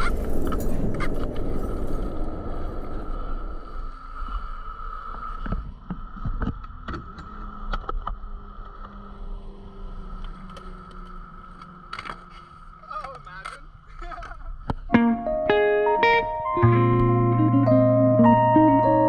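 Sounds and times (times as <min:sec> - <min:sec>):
skateboard wheels rolling on concrete: 0:00.0 - 0:14.9.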